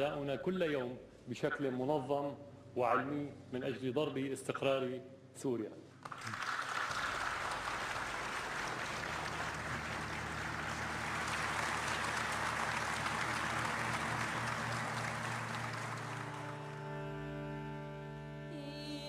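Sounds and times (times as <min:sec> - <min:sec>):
audience applauding: 0:06.0 - 0:18.0.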